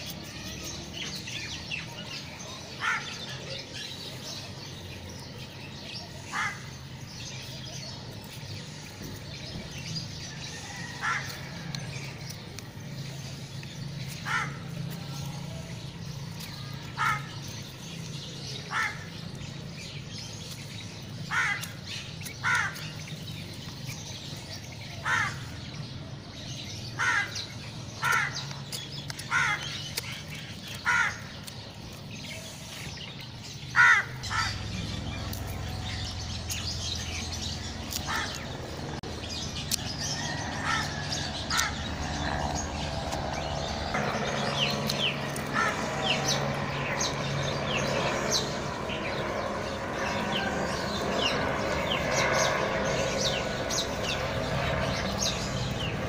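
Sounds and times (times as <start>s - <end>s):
small birds chirping: 0.0s - 56.0s
crow cawing: 6.3s - 6.7s, 10.8s - 11.4s, 14.2s - 14.6s, 17.0s - 17.4s, 18.7s - 19.1s, 21.3s - 21.8s, 22.4s - 22.9s, 25.0s - 25.5s, 27.0s - 27.4s, 28.0s - 28.5s, 29.3s - 29.8s, 30.8s - 31.3s, 33.7s - 34.7s, 38.0s - 38.4s, 40.2s - 41.8s, 45.5s - 46.2s
steady low hum: 27.5s - 56.0s.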